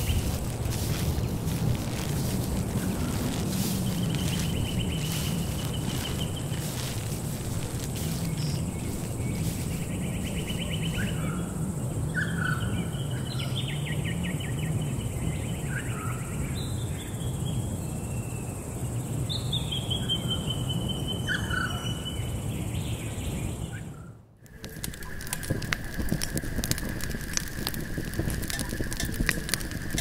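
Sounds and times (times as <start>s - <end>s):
low background rumble: 0.0s - 12.0s
songbirds chirping: 0.0s - 30.0s.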